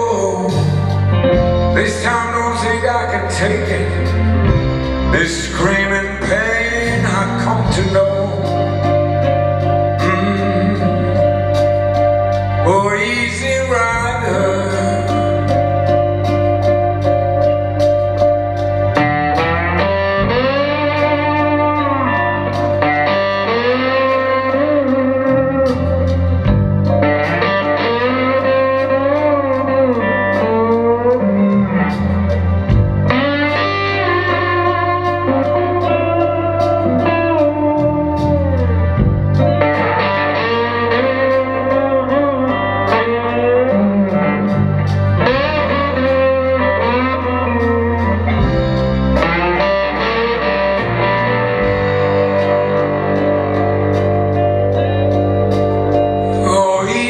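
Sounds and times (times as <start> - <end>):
bass guitar line: 0.0 - 57.0
drums: 0.0 - 57.0
electric guitar lead: 0.0 - 57.0.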